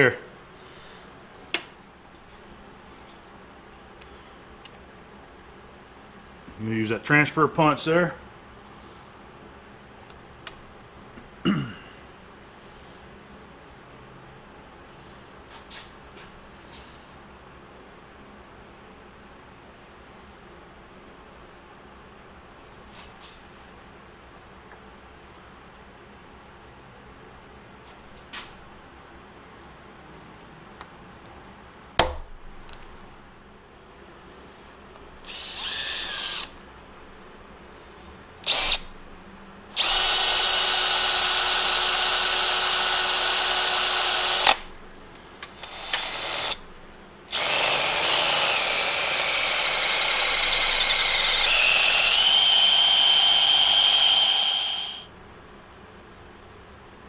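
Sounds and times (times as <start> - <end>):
cordless drill whining: 35.2 - 36.6, 38.4 - 38.9, 39.8 - 44.6, 45.6 - 46.6, 47.3 - 55.1.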